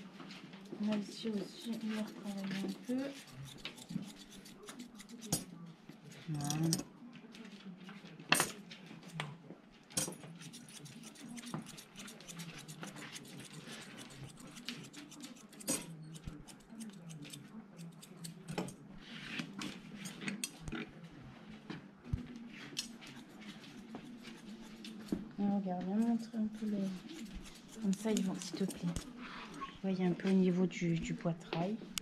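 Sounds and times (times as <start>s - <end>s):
scissors snipping fur: 1.3s - 5.6s, 10.0s - 18.8s, 22.7s - 25.2s, 25.9s - 29.2s.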